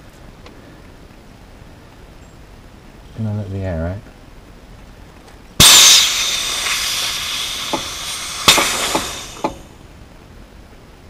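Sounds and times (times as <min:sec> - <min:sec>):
compressed air hissing from valve: 0:05.6 - 0:09.8.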